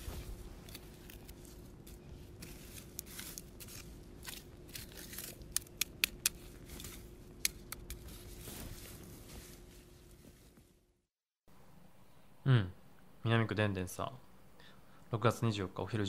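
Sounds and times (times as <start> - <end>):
shovel digging and scraping soil: 0.0 - 9.1.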